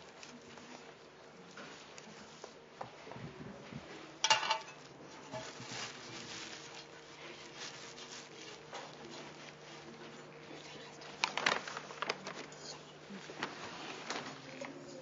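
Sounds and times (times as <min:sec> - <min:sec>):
bags rustling and clicking: 0:11.1 - 0:12.6, 0:13.2 - 0:14.9.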